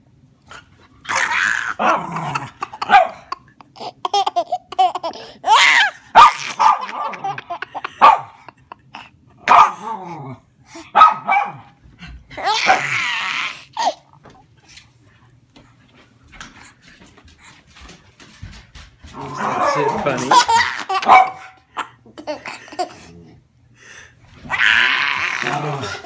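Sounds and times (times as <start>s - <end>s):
baby laughing: 1.1s - 9.2s, 12.4s - 14.1s, 19.5s - 23.1s
dog barking: 2.8s - 3.4s, 6.1s - 7.2s, 8.0s - 8.4s, 9.5s - 9.8s, 10.9s - 11.8s, 21.0s - 21.6s.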